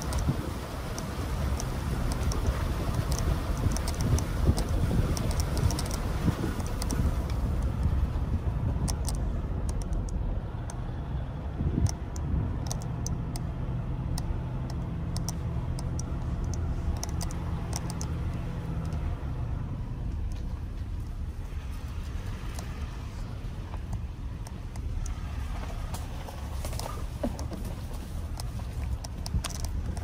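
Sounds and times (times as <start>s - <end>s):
light ticks: 0.0s - 8.0s, 8.8s - 10.8s, 11.8s - 19.1s, 20.1s - 21.2s, 22.0s - 22.9s, 23.7s - 30.0s
wind noise: 0.0s - 10.6s, 11.2s - 13.5s
car engine and tyre rumble: 0.0s - 30.0s.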